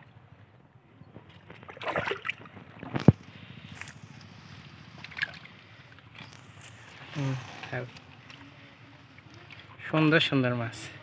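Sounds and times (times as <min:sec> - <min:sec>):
water splashing among fish: 0:01.3 - 0:04.2, 0:04.9 - 0:07.0.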